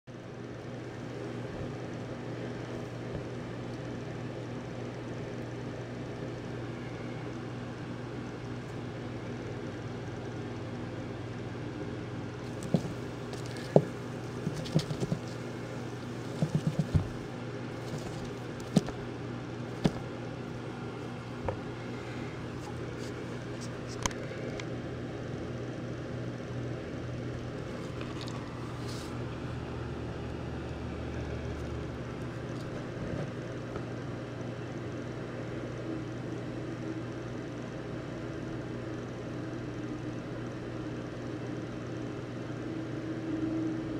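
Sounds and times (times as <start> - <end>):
steady low hum: 0.1 - 43.9.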